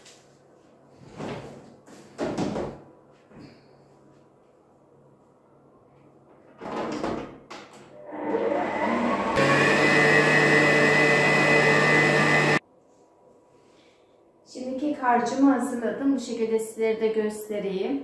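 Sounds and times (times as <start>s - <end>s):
stand mixer motor whining: 8.0s - 12.6s.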